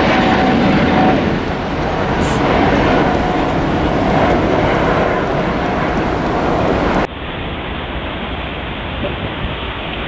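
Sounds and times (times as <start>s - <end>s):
jet plane taking off rush: 0.0s - 9.9s
jet engine roar: 0.0s - 10.0s.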